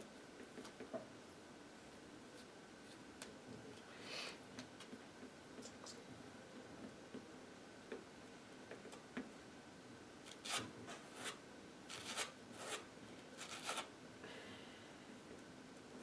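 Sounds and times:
cards scraping on table: 0:13.4 - 0:13.9.

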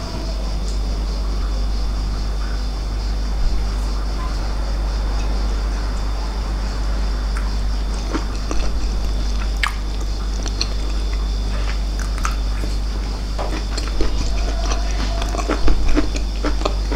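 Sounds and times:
steady low hum: 0:00.0 - 0:16.9
person chewing food: 0:07.3 - 0:16.9.

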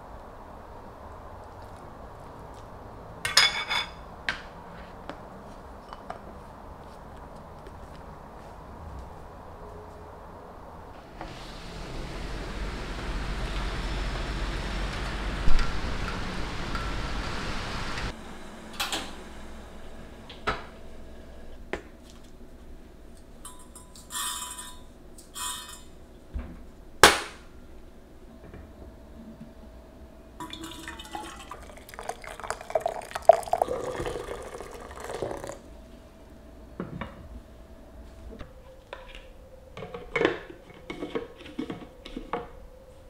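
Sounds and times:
kitchenware clattering: 0:03.3 - 0:04.1
rain falling: 0:11.0 - 0:18.1
liquid being poured: 0:30.4 - 0:35.6.

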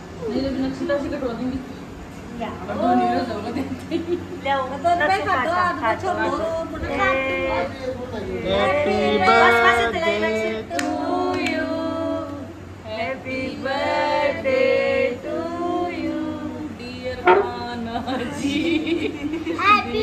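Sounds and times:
voices singing together: 0:06.5 - 0:18.8
sharp knock: 0:17.3 - 0:17.6.

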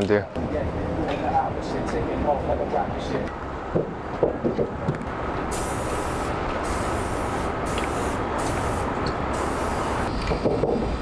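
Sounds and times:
spray paint can hissing: 0:05.5 - 0:10.1.

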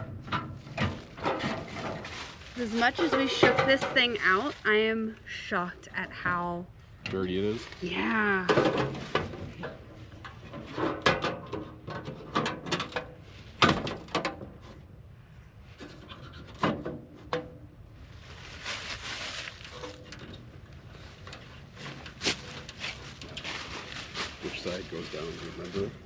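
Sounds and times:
tent fabric rustling: 0:18.1 - 0:20.0, 0:21.8 - 0:25.9.

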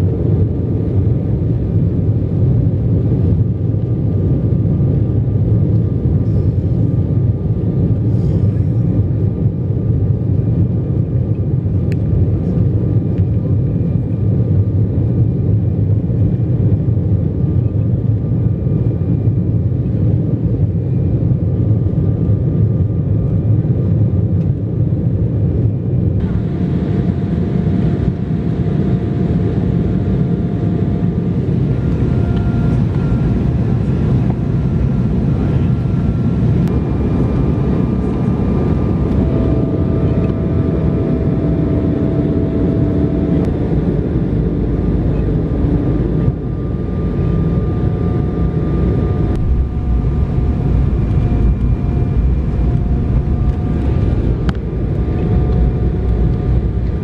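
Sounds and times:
jet engine cabin noise: 0:00.0 - 0:57.0
faint steady tones: 0:31.0 - 0:57.0.

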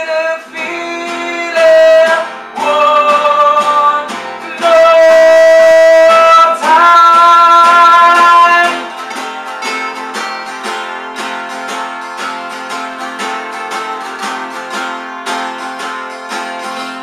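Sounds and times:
man singing: 0:00.0 - 0:09.1
acoustic guitars strummed: 0:00.0 - 0:17.0.

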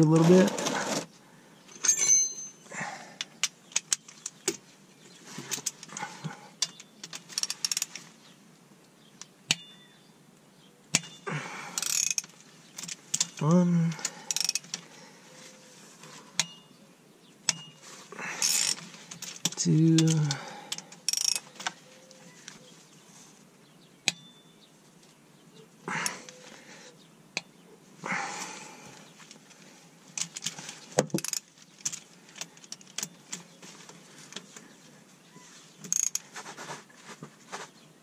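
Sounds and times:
metal tools clinking: 0:01.7 - 0:02.9, 0:17.5 - 0:20.5
socket ratchet clicking: 0:11.8 - 0:13.3, 0:14.3 - 0:14.7, 0:21.1 - 0:21.5.

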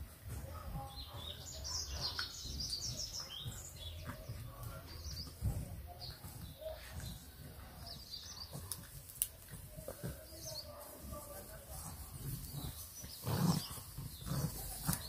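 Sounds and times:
birds chirping: 0:00.0 - 0:15.0
rustling in grass clippings: 0:08.4 - 0:15.0
puppies grunting and growling: 0:11.6 - 0:15.0.

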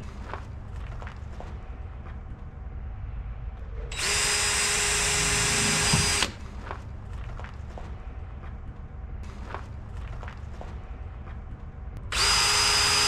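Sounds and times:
cordless drill whining: 0:03.9 - 0:06.4, 0:12.1 - 0:13.0.

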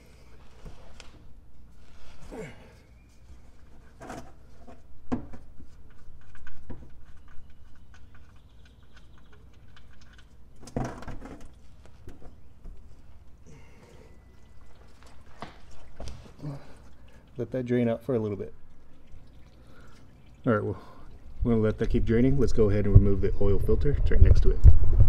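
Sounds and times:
plastic drain pan knocking and scraping: 0:10.6 - 0:12.3
oil running into pan: 0:18.2 - 0:21.8.

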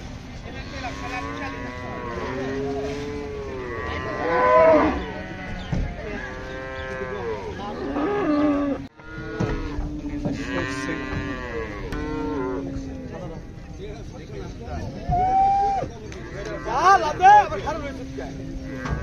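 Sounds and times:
cattle lowing: 0:00.5 - 0:13.6.

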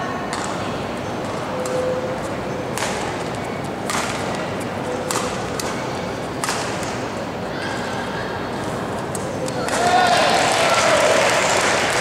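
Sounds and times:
sports hall background noise: 0:00.0 - 0:12.0
racket hitting shuttlecock: 0:00.3 - 0:00.6, 0:02.7 - 0:07.2.

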